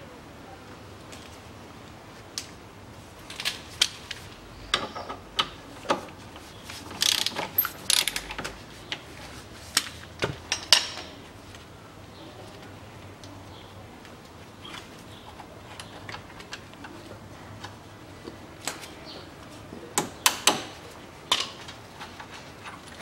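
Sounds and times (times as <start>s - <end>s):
ratchet wrench clicking: 7.0s - 8.4s.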